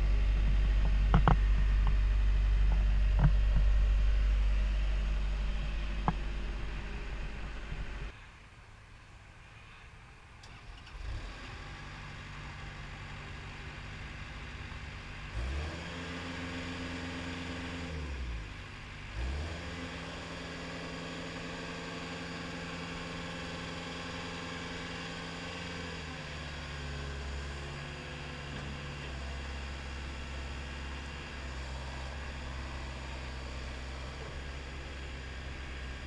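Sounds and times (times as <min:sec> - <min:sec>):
diesel engine starting and revving: 0:00.0 - 0:08.2, 0:10.4 - 0:36.0.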